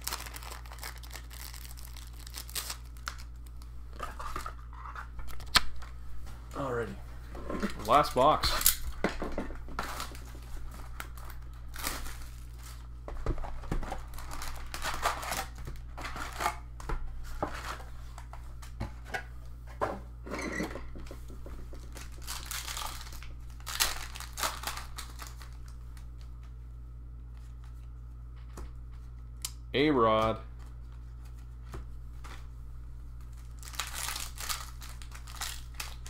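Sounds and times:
wrappers tearing and crinkling: 0:00.0 - 0:04.5, 0:08.0 - 0:09.0, 0:09.8 - 0:12.9, 0:13.8 - 0:16.6, 0:21.8 - 0:26.2, 0:33.3 - 0:36.0
steady low hum: 0:00.0 - 0:36.0.

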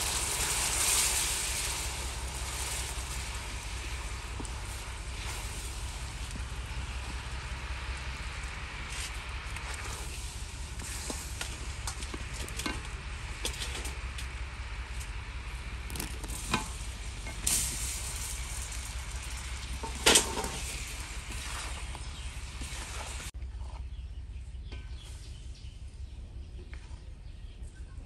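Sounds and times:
spatula scraping a wok: 0:00.0 - 0:14.1, 0:15.9 - 0:23.8
syrup bubbling and sizzling: 0:00.0 - 0:23.4
bananas dropped into wok: 0:19.7 - 0:21.4.

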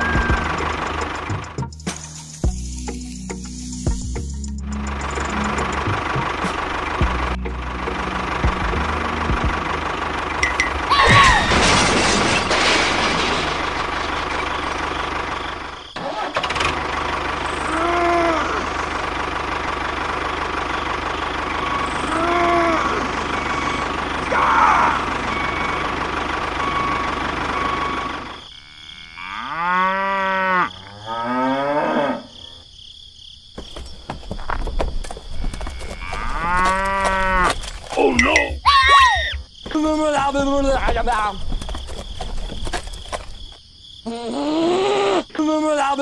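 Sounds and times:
tractor engine running: 0:00.0 - 0:28.5, 0:33.6 - 0:38.7, 0:39.3 - 0:43.6
cow mooing: 0:21.7 - 0:23.2, 0:28.6 - 0:32.6, 0:35.4 - 0:37.6.

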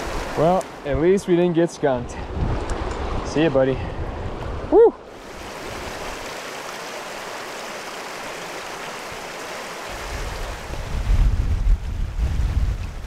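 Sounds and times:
river water rushing: 0:00.0 - 0:03.4, 0:04.6 - 0:11.0
wind buffeting microphone: 0:01.9 - 0:06.2, 0:09.9 - 0:13.0.

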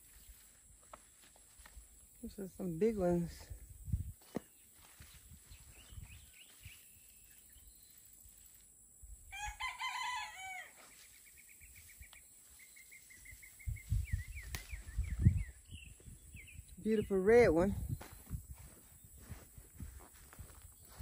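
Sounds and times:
rooster crowing: 0:09.3 - 0:10.8
high bird chirps: 0:10.9 - 0:17.2.

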